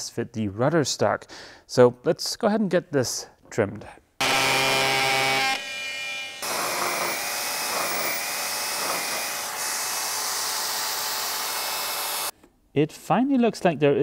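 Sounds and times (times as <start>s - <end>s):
oscillating multi-tool buzzing: 4.2s - 12.3s.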